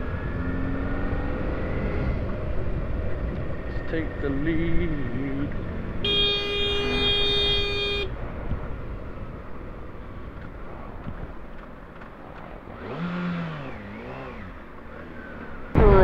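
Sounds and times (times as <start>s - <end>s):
wind and road noise: 0.0s - 16.0s
vehicle horn: 6.0s - 8.1s.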